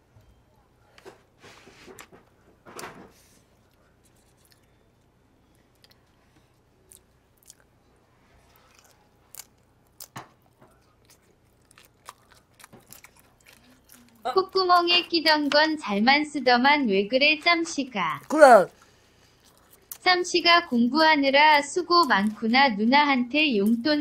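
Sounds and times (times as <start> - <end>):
chewing shrimp: 3.6 - 15.8, 17.3 - 22.8.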